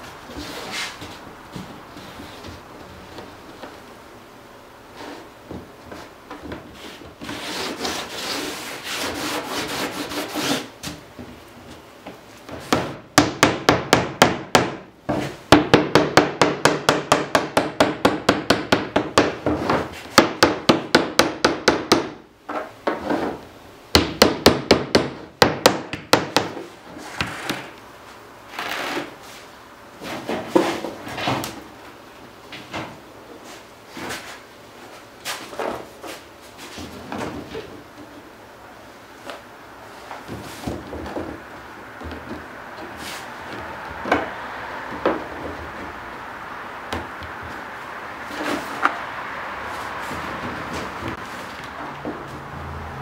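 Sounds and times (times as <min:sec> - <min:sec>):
wood rubbing: 0:05.0 - 0:10.7.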